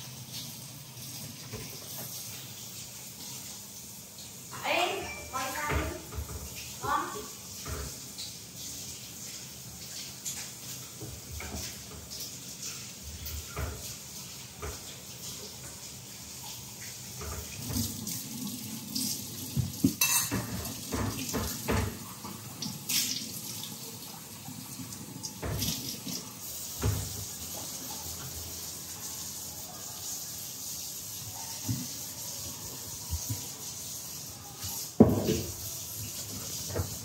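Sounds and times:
tap water running into sink: 0.0 - 37.0
dishes and pots clattering: 19.5 - 22.2, 35.0 - 35.6.

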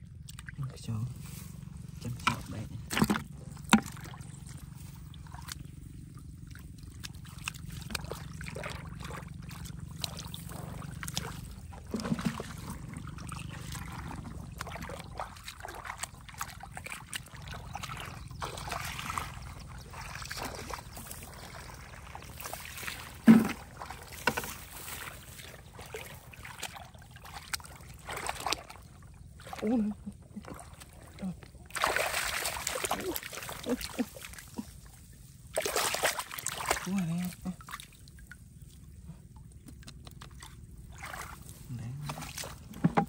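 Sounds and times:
low steady hum: 0.0 - 43.0
water and mud sloshing: 0.0 - 43.0.

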